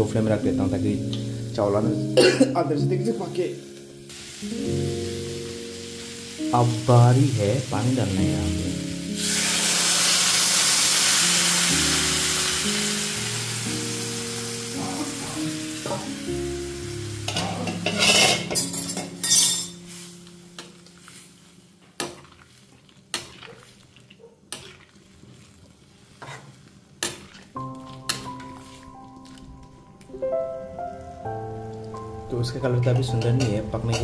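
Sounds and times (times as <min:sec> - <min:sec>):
water sizzling in hot oil: 0:03.0 - 0:29.5.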